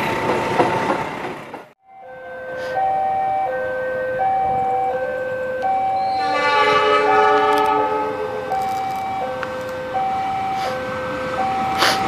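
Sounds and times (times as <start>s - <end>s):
two-tone crossing alarm: 1.8s - 12.0s
train horn chord: 3.5s - 8.6s.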